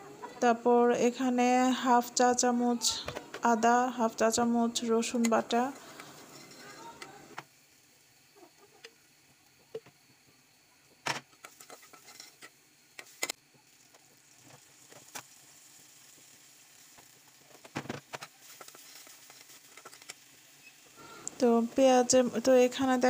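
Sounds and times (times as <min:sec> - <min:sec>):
faint sizzle: 0:00.0 - 0:23.0
spatula scraping a pan: 0:05.7 - 0:07.0, 0:11.4 - 0:13.2, 0:18.4 - 0:21.2.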